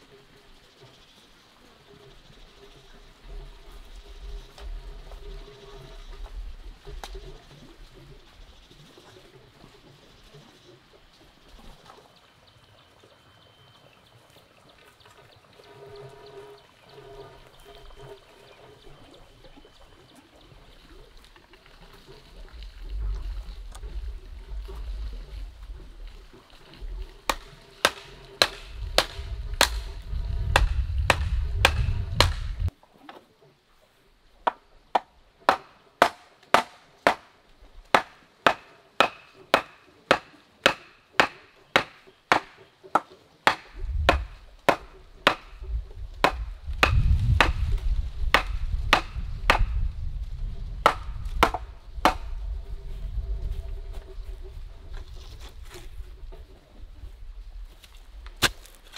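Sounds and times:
wooden knocks of pounding stake: 27.2 - 32.7, 34.4 - 37.3, 37.9 - 45.6, 46.2 - 47.7, 48.3 - 49.8, 50.8 - 52.3.

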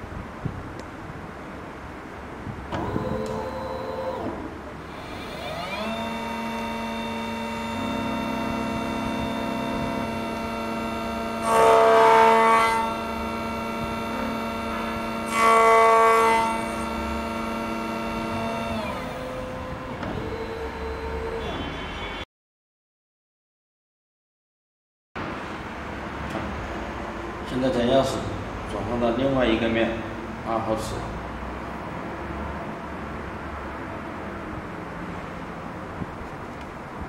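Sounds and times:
carriage whirring: 2.7 - 21.6
key cutting machine whining: 2.8 - 21.6.

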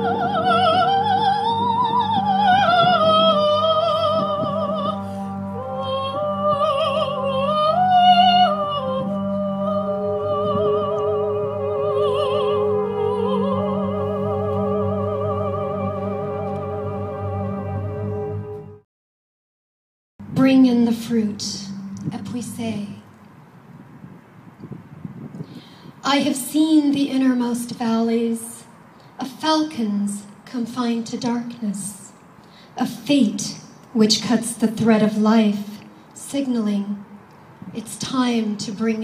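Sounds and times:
operatic soprano singing: 0.0 - 18.2
steady low drone: 20.2 - 23.4.

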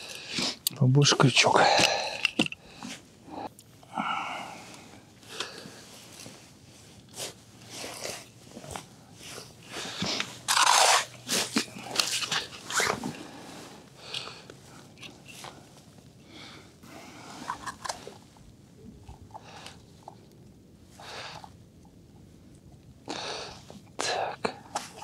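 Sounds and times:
slush and ice crunching: 9.3 - 13.1.

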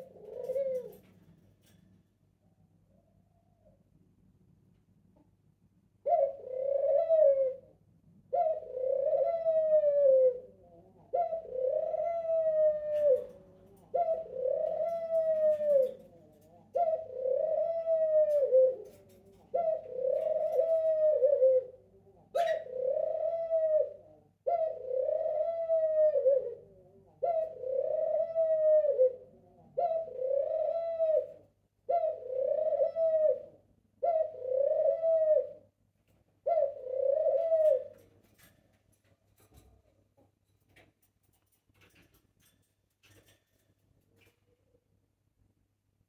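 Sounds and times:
dove cooing: 0.0 - 1.8, 6.0 - 39.9.

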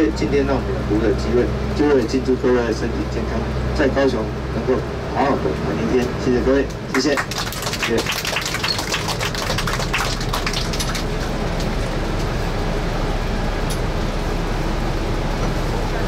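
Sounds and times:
tour bus running noise: 0.0 - 16.0
passengers applauding: 6.9 - 12.0.

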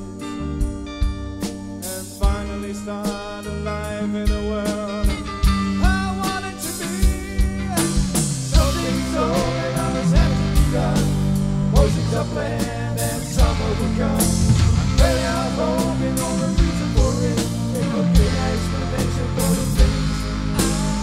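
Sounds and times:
rock band playing: 0.0 - 21.0
wavering lead melody: 8.6 - 21.0.

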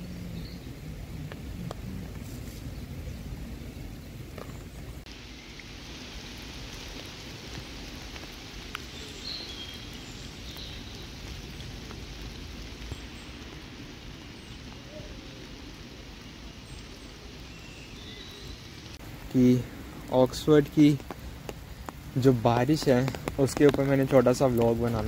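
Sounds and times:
rain falling on a puddle: 0.0 - 25.0.

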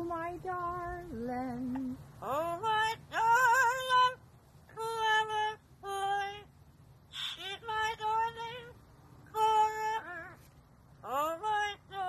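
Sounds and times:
parrot singing: 2.2 - 12.0.

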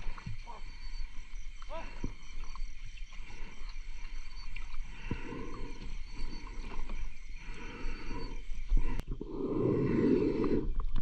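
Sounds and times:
diver breathing underwater: 4.8 - 11.0.

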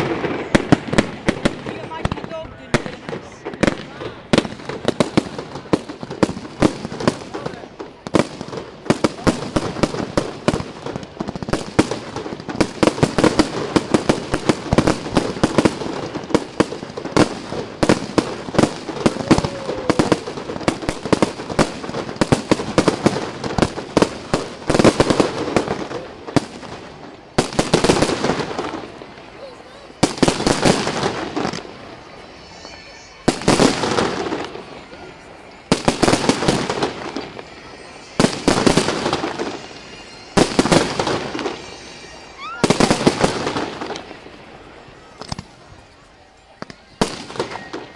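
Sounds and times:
firework crackling: 0.0 - 47.9
firework shells bursting: 30.0 - 44.3.

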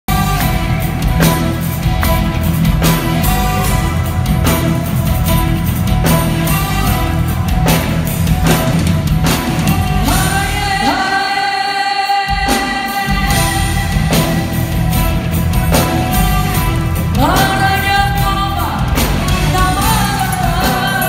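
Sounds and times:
live pop band playing: 0.0 - 21.0
woman singing: 9.9 - 14.8, 17.1 - 21.0.

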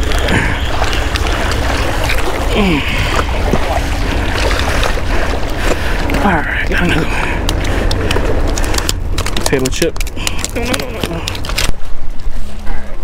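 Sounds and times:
waves splashing against rocks: 0.0 - 12.4
wind rumbling on microphone: 0.0 - 13.0.

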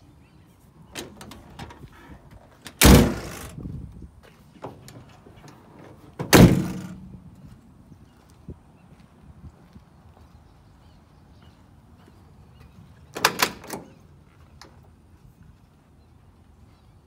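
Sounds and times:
steel doors slamming: 2.7 - 3.6, 6.2 - 7.0, 13.2 - 14.0
door latch clicks: 13.1 - 13.9.

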